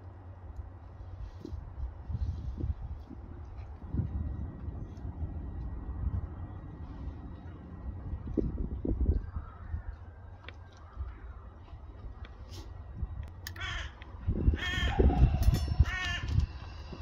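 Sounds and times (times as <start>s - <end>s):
low rumble: 0.0s - 17.0s
crow cawing: 13.5s - 16.5s.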